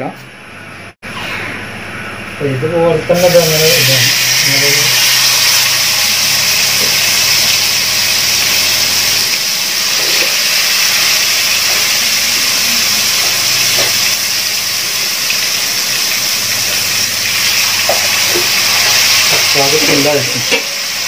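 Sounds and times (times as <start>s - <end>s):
chicken sizzling in hot oil: 3.2s - 21.0s.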